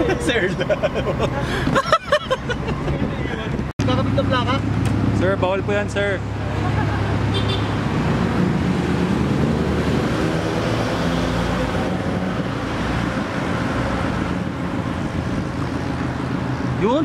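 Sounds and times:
road noise: 0.0 - 17.0
wind buffeting microphone: 11.7 - 16.8.

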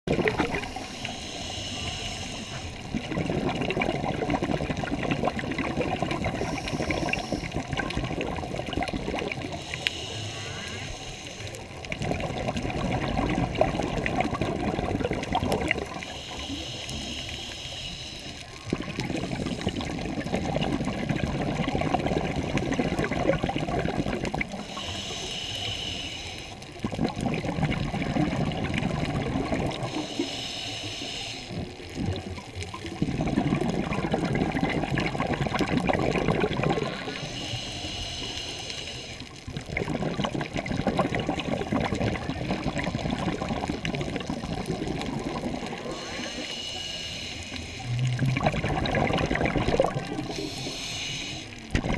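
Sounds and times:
exhaled bubbles rushing underwater: 0.0 - 25.3, 26.6 - 30.6, 31.5 - 51.9
regulator inhale hiss: 0.5 - 2.9, 6.2 - 7.7, 9.4 - 11.8, 15.9 - 20.0, 24.6 - 26.8, 29.7 - 31.9, 37.0 - 39.4, 45.6 - 47.9, 50.0 - 51.7.

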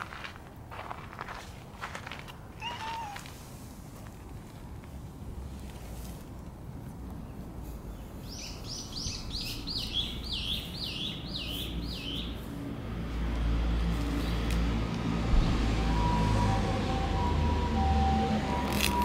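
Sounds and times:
songbird singing: 7.1 - 12.5
low rumble: 14.5 - 16.6.

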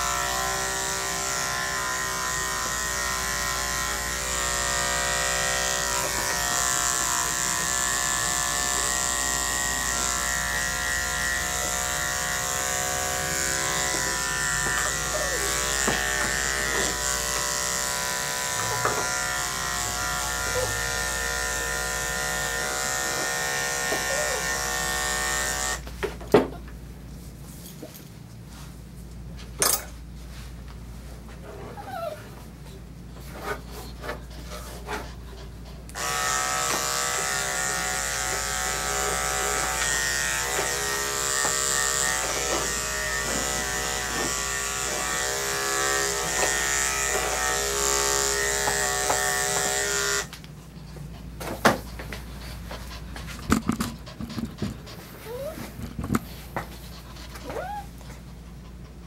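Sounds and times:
electric clippers running: 0.0 - 25.9, 35.9 - 50.4.

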